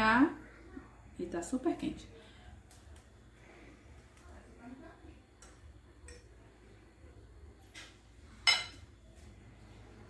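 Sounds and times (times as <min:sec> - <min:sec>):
cutlery clinking on plate: 0:07.8 - 0:08.9.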